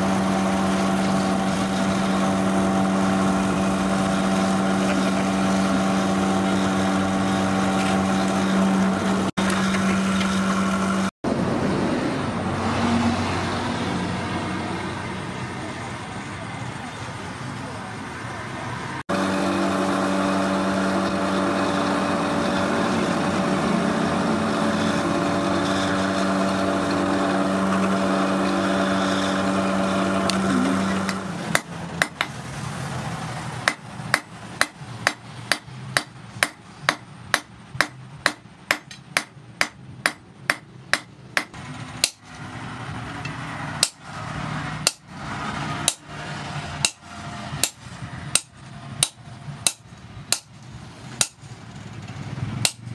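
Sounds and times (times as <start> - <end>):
power hammer humming: 19.1 - 32.4.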